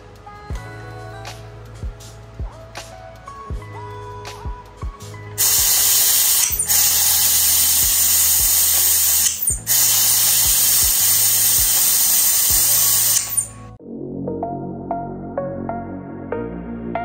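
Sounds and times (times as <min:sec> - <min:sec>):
background music with soft beat: 0:00.0 - 0:17.0
spraying hiss: 0:05.4 - 0:13.5.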